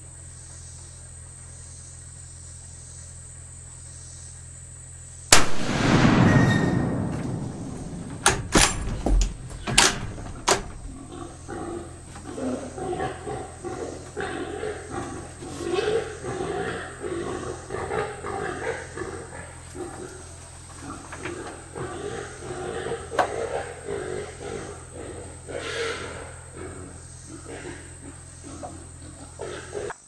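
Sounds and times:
rifle shot with echo: 5.3 - 11.0
sharp clicks: 5.4 - 11.2
wild hog squealing: 8.0 - 30.0.

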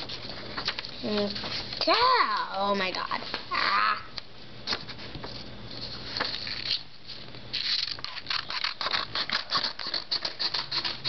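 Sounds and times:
scissors cutting paper: 7.6 - 11.0.

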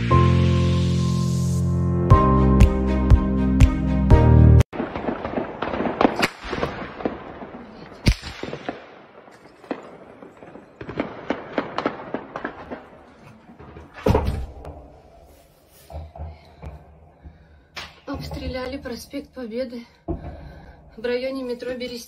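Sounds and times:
gunfire cracks and bangs: 4.7 - 15.0.

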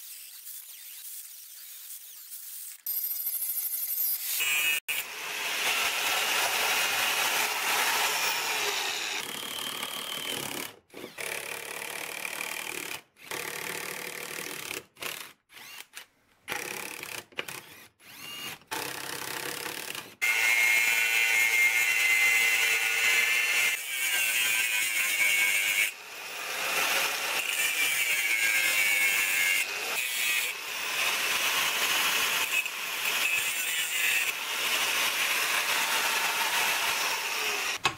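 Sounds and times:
angle grinder cutting steel: 0.0 - 10.3, 20.2 - 37.9
power drill boring through steel: 2.9 - 13.3, 19.8 - 37.9.

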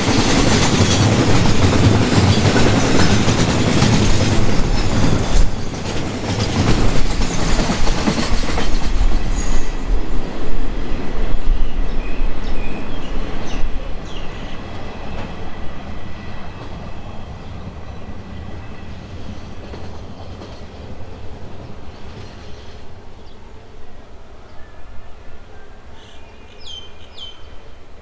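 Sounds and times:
train wheel noise: 0.0 - 23.0
freight train rolling: 0.0 - 24.4.

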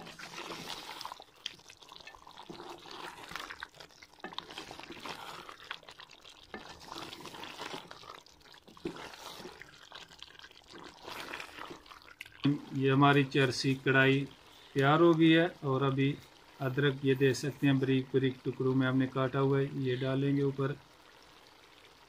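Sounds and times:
spatula scraping a pot: 0.0 - 1.3, 2.0 - 5.8, 6.4 - 12.6
food sizzling and bubbling in a pot: 0.0 - 22.0.

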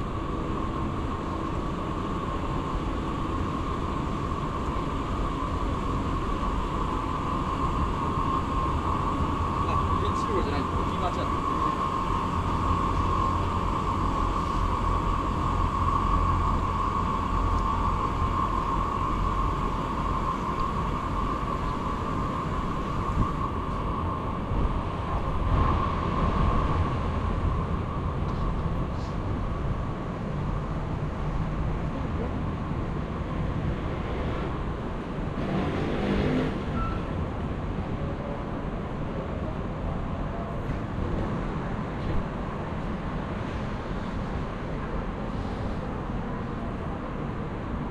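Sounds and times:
low traffic rumble: 0.0 - 47.9
mid-pitched hum: 0.0 - 47.9
vehicle passing: 35.3 - 36.8.

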